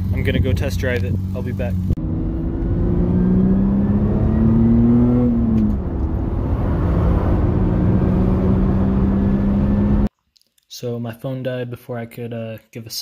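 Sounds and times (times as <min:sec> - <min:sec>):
car engine accelerating: 0:00.0 - 0:10.1.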